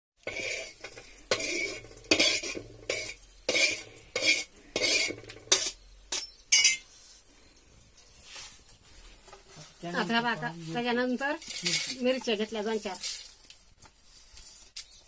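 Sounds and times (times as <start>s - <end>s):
seeds rattling on metal: 0.2s - 7.1s, 10.0s - 15.0s
spices scraped across iron griddle: 0.2s - 7.3s, 9.6s - 15.0s.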